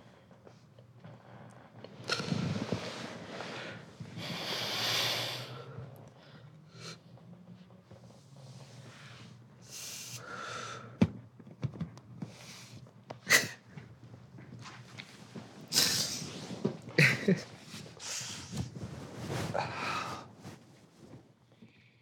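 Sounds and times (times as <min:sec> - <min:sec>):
person sighing heavily: 0:19.6 - 0:20.3.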